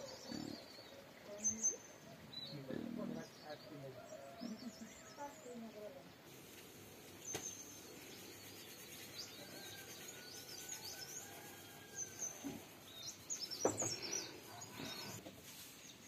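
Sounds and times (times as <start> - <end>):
faint outdoor hiss: 0.0 - 16.0
small birds chirping: 0.0 - 16.0
soft knocks: 13.6 - 14.2.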